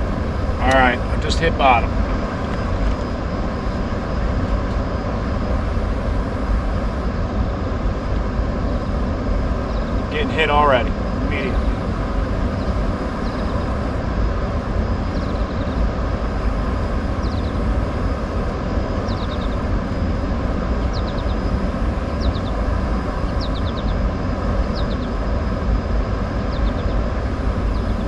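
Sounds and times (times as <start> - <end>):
faint hum: 0.0 - 28.0
low rumble of water and machinery: 0.0 - 28.0
bird chirping: 11.1 - 14.0, 15.0 - 15.9, 16.6 - 18.3, 19.0 - 19.7, 20.8 - 24.0, 24.6 - 25.2, 26.4 - 28.0.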